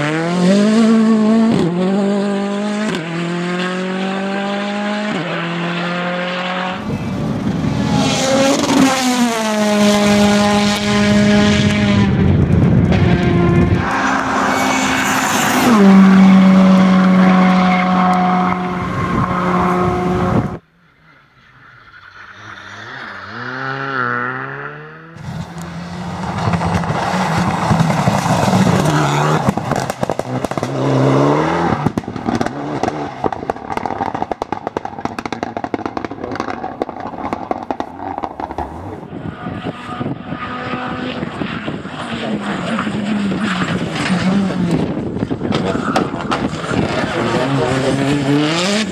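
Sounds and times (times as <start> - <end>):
rally car engines revving: 0.0 - 48.9.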